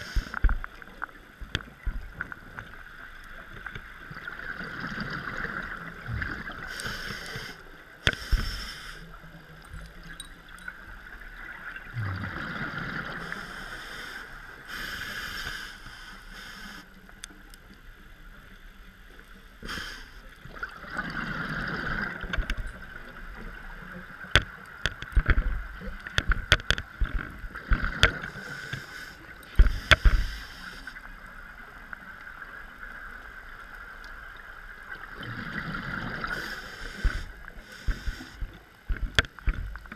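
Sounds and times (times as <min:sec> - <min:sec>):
regulator hiss on inhale: 0:00.0 - 0:00.6, 0:06.6 - 0:09.3, 0:13.0 - 0:17.2, 0:19.6 - 0:20.4, 0:28.2 - 0:31.2, 0:36.2 - 0:38.6
sharp clicks and knocks: 0:24.3 - 0:28.3, 0:37.0 - 0:39.9.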